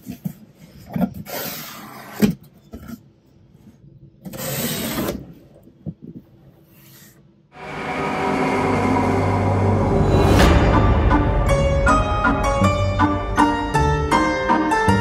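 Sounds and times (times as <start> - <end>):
music: 7.6 - 15.0.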